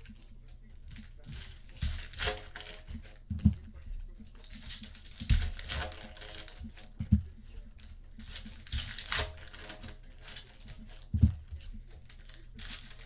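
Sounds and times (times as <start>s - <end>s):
foil packaging crinkling and tearing: 0.0s - 13.0s
dull thumps: 1.2s - 10.1s, 10.8s - 12.1s.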